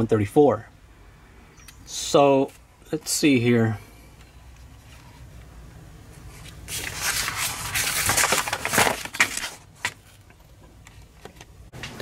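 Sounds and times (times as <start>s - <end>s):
paper rustling and crinkling: 6.1s - 10.3s.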